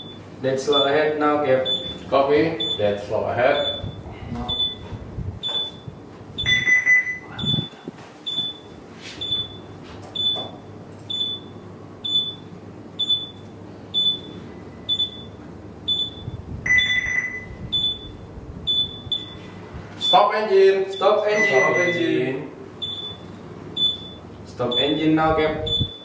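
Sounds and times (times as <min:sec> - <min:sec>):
longer low alarm tone: 0:00.0 - 0:10.4, 0:13.0 - 0:22.2
short high alarm beeps: 0:01.6 - 0:02.0, 0:02.6 - 0:02.9, 0:03.5 - 0:12.4, 0:13.0 - 0:13.4, 0:14.0 - 0:20.3, 0:20.9 - 0:22.2, 0:22.8 - 0:25.0, 0:25.7 - 0:26.0.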